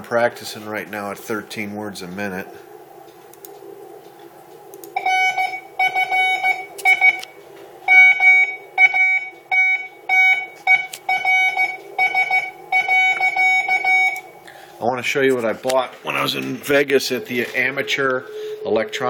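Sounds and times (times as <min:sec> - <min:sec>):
morse code beeping: 0:05.0 - 0:07.3, 0:07.9 - 0:14.3.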